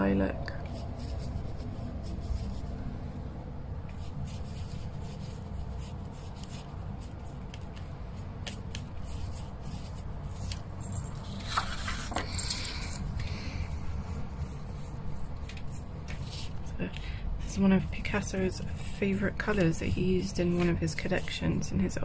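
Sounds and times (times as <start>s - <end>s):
low background rumble: 0.0s - 12.0s
scratchy brush strokes on paper: 0.5s - 3.0s, 3.8s - 10.6s, 13.3s - 22.0s
paintbrush scraping and dabbing: 0.5s - 22.0s.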